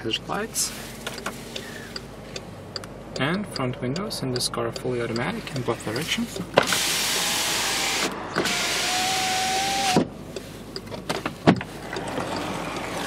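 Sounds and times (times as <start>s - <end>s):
power window motor whine: 6.6s - 10.1s.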